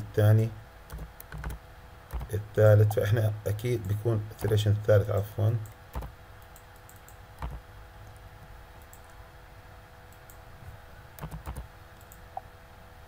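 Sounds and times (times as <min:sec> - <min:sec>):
low steady hum: 0:00.0 - 0:13.0
computer keys clicking: 0:00.9 - 0:02.4, 0:05.6 - 0:07.6, 0:08.8 - 0:09.2, 0:10.1 - 0:10.4, 0:11.2 - 0:12.2.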